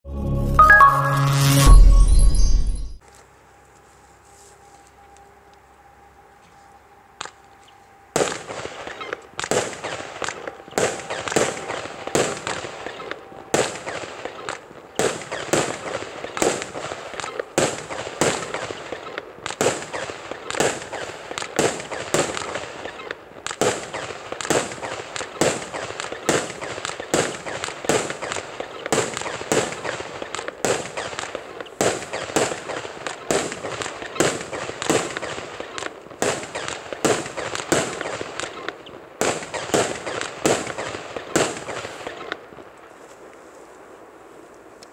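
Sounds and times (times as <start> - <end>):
firework shots with crackling tails: 8.2 - 42.5.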